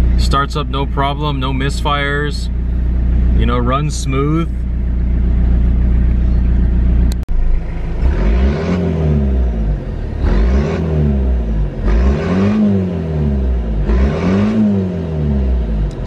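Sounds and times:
diesel engine idling: 0:00.0 - 0:12.1
engine revving: 0:00.0 - 0:16.0.

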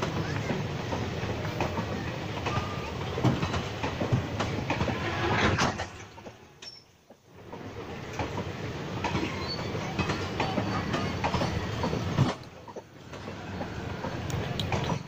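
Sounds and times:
train wheels knocking over rail joints: 0:08.1 - 0:13.8.

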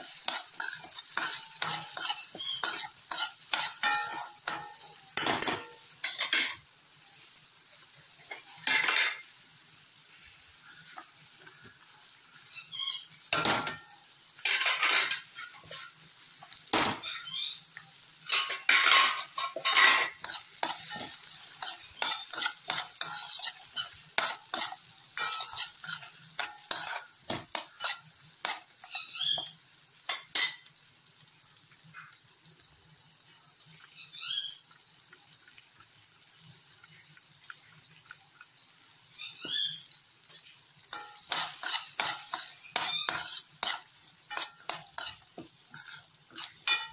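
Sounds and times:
metal spoon scraping a pan: 0:00.0 - 0:06.6, 0:08.2 - 0:09.4, 0:13.3 - 0:16.0, 0:18.2 - 0:29.5, 0:30.1 - 0:30.7, 0:40.3 - 0:46.9
faint sizzle: 0:00.0 - 0:46.9.

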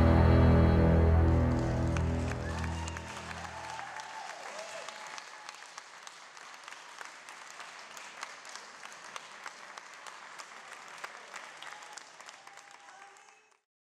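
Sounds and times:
audience applauding: 0:00.8 - 0:13.7.

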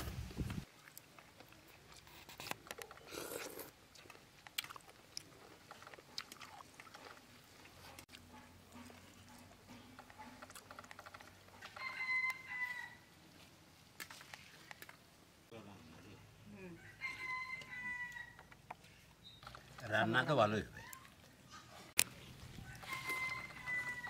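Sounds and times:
people eating: 0:00.6 - 0:11.9
chicken calling: 0:22.6 - 0:24.0.

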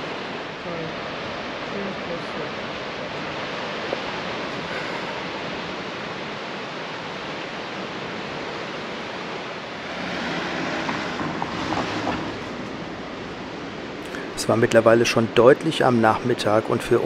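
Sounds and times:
ocean surf breaking on rocks: 0:00.0 - 0:17.0.

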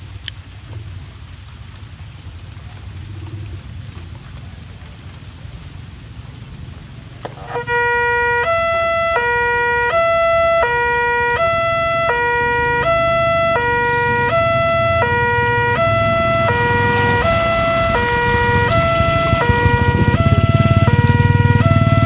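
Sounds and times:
level crossing alarm tones: 0:07.2 - 0:22.0.

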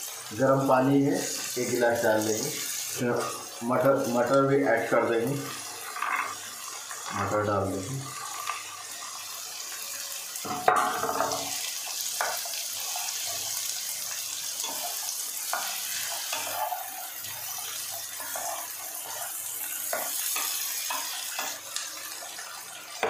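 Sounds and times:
vegetables sizzling in a pan: 0:00.0 - 0:23.0
wooden spatula scraping a pan: 0:05.8 - 0:06.4, 0:14.6 - 0:21.6.

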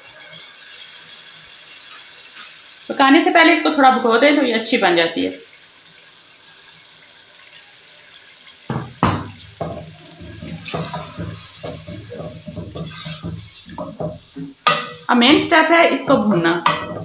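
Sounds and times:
food sizzling in oil: 0:00.0 - 0:17.0
wooden spoon knocking a pot: 0:08.7 - 0:15.6, 0:16.2 - 0:17.0.

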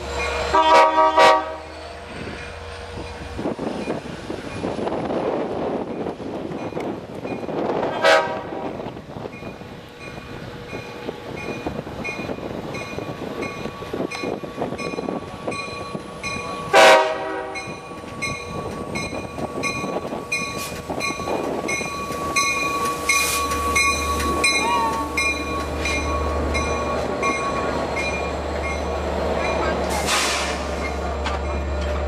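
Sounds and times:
train rumble: 0:00.0 - 0:32.0
train horn blasts: 0:00.4 - 0:01.7, 0:07.9 - 0:08.7, 0:16.6 - 0:17.8
crossing bell ringing: 0:09.3 - 0:29.9.

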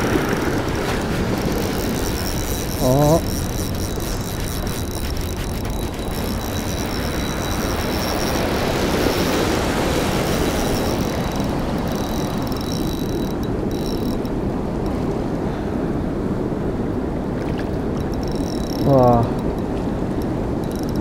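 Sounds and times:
turbulent river water rushing: 0:00.0 - 0:13.9.

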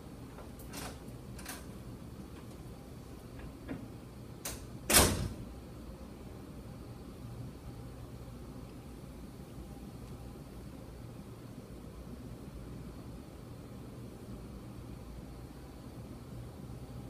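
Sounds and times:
door shutting thump: 0:04.5 - 0:05.4.

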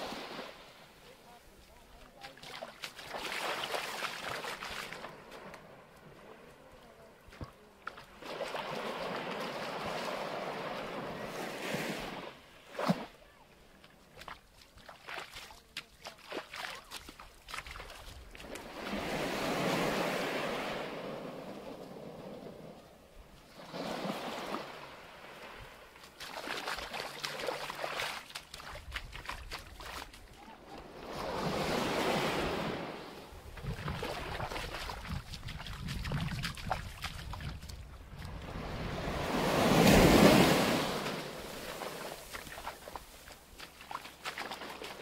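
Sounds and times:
small wave washing on sand: 0:00.0 - 0:13.2, 0:14.1 - 0:45.0.

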